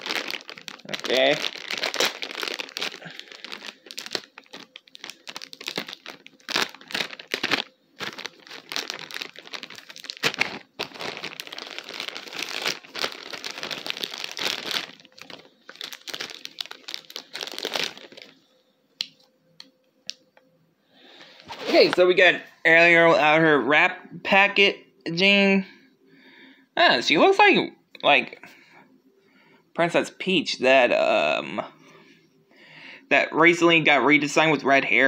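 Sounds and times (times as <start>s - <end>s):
plastic wrapper crinkling and tearing: 0.0s - 18.4s.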